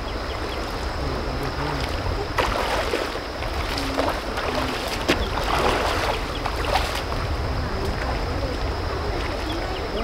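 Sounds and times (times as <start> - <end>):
rocky stream running: 0.0 - 10.0
wind rumbling on microphone: 0.0 - 10.0
water splash: 1.5 - 7.2.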